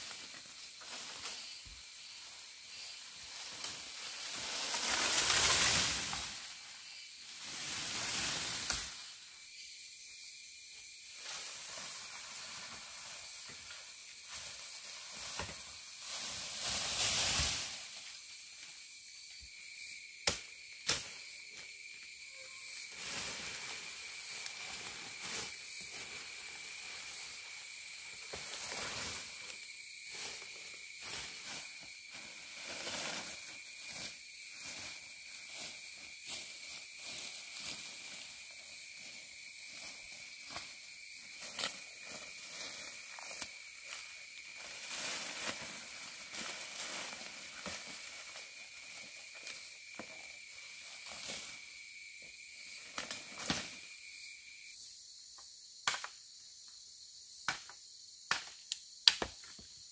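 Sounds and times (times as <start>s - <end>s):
rustling of dry leaf litter: 0.0s - 9.2s, 11.0s - 19.2s, 22.6s - 53.9s
high insect hiss: 0.0s - 59.9s.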